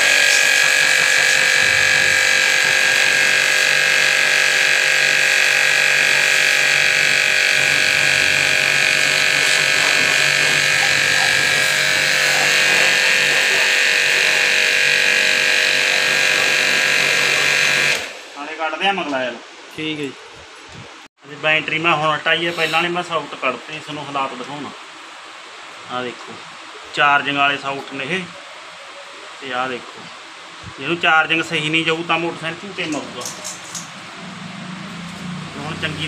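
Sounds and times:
pressure washer pump humming: 0:00.0 - 0:18.6, 0:29.4 - 0:36.0
water jet hissing: 0:00.0 - 0:36.0.

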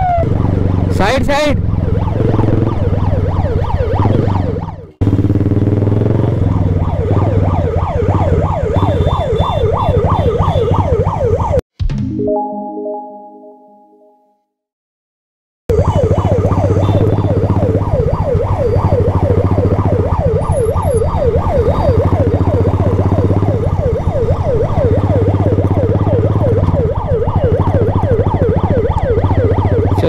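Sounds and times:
ambulance siren yelping: 0:00.0 - 0:05.0, 0:06.4 - 0:11.6, 0:15.7 - 0:30.0
motorcycle engine droning: 0:01.6 - 0:11.0, 0:15.7 - 0:30.0.

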